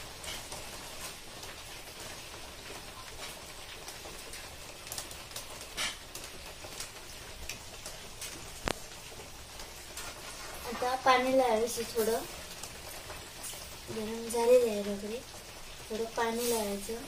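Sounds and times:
sharp pops from fire: 0.0 - 10.7
fire hissing: 0.0 - 17.0
wood fire crackling: 0.0 - 17.0.

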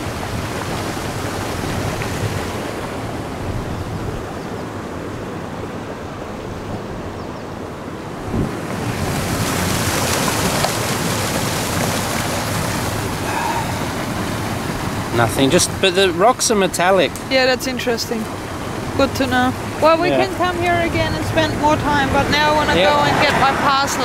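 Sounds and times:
water rushing over rocks: 0.0 - 6.4, 7.8 - 24.0
wind on microphone: 0.0 - 15.5.

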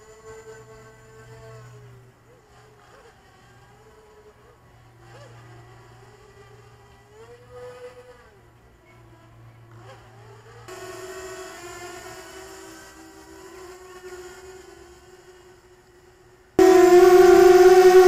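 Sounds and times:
drone propellers buzzing: 16.6 - 18.0.

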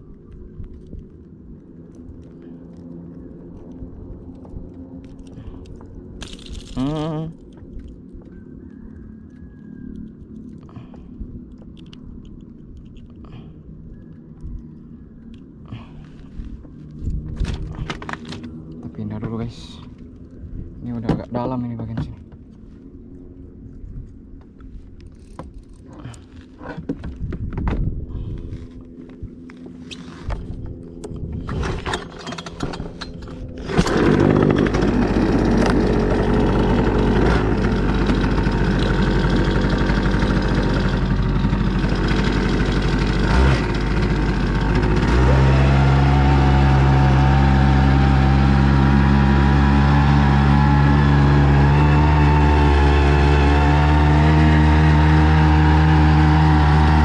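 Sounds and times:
outboard motor running: 30.2 - 57.0.

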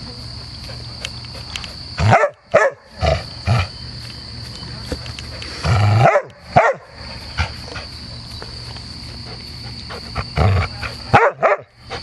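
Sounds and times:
dog barking: 2.0 - 2.9, 6.0 - 7.0, 11.1 - 11.7
large dog growling: 5.4 - 6.1, 9.9 - 11.1.

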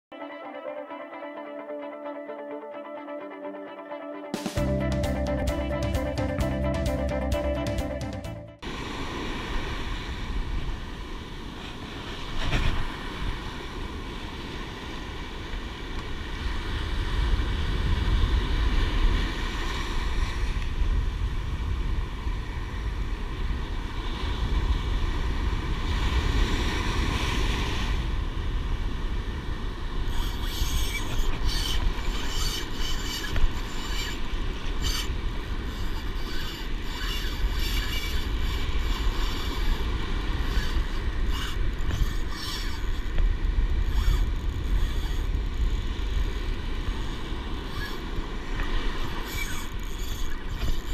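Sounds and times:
surf washing in: 8.6 - 30.4
fishing reel gears whirring: 30.1 - 48.0, 49.0 - 50.9.

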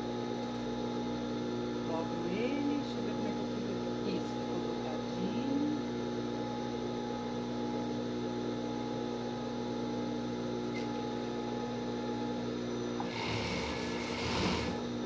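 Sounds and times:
sewing machine stitching: 13.0 - 14.8
sewing machine motor humming: 13.0 - 14.9.

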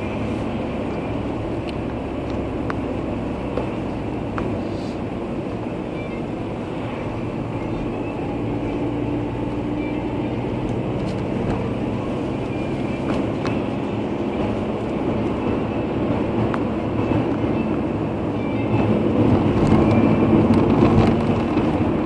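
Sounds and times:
car driving on paved road: 0.0 - 22.0.

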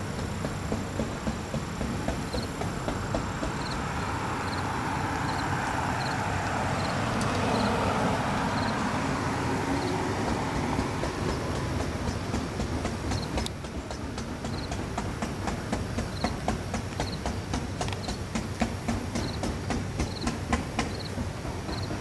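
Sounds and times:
passing vehicle rumbling: 0.0 - 14.7
faint high ticks: 5.3 - 7.7, 11.0 - 21.2.

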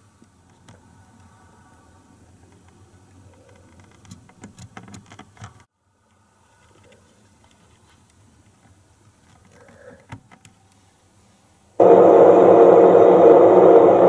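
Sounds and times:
model locomotive engine drone: 11.8 - 14.0.

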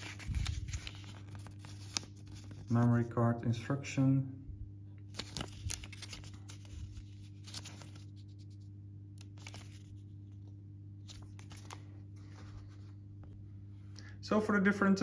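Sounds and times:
paper pages flipping: 0.0 - 2.7, 5.1 - 13.0.

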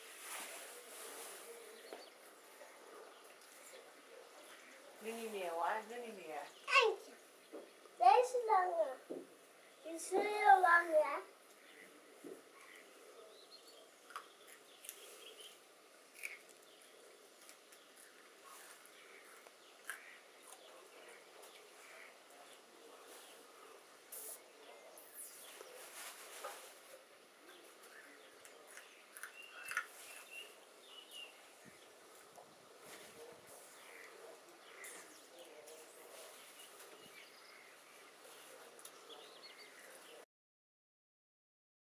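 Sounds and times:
distant birds chirping: 1.5 - 40.2
green beans snapping and chewed: 14.0 - 15.1, 16.1 - 20.8, 27.8 - 30.3.

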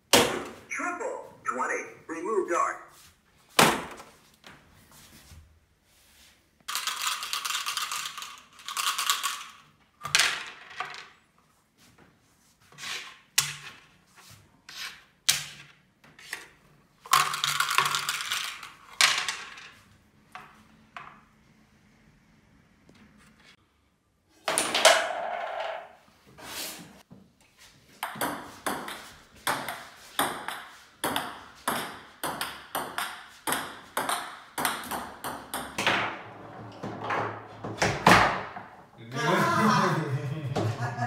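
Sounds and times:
dice rattling in a cup: 6.7 - 9.7, 17.1 - 19.5
dice landing on wooden board: 10.0 - 11.1, 17.1 - 19.8, 24.5 - 25.9.

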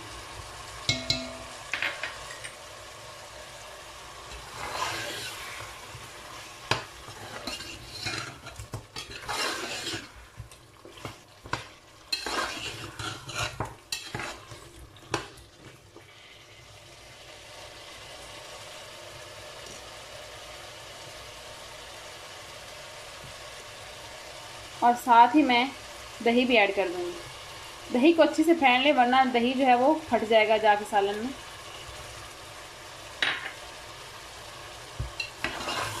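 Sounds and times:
curry sizzling in a metal pot: 0.0 - 36.0
metal spoon scraping a pot: 7.1 - 10.2, 10.9 - 15.3, 35.2 - 36.0.

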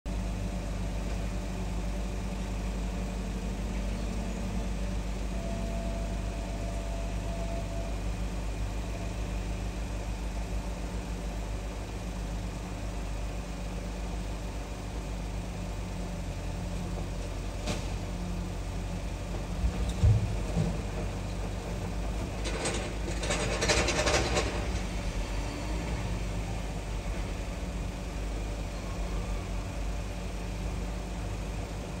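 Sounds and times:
car engine idling: 0.1 - 17.6.

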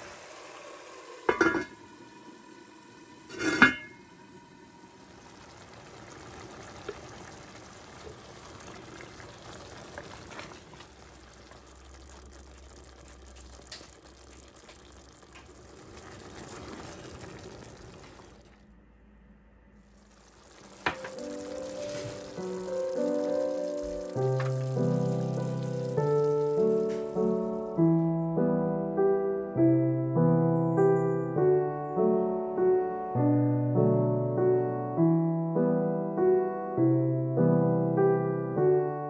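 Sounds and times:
curry simmering and bubbling: 0.1 - 18.6, 19.8 - 27.7
pot lid clinking on pot: 1.3 - 1.8, 3.3 - 4.0
music: 21.0 - 39.0.

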